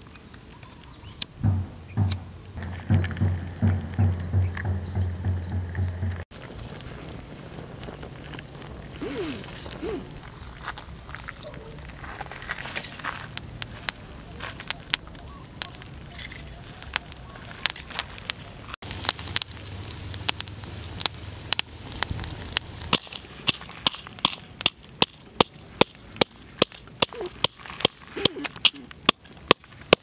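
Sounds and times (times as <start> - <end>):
charcoal fire crackling and popping: 0.0 - 30.0
pestle pounding in a mortar: 1.4 - 6.2.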